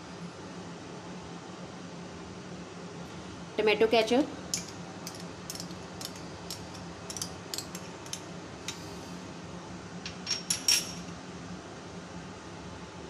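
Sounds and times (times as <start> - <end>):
fork clicking and scraping: 4.5 - 8.8
metal clinking on glass: 10.1 - 11.0.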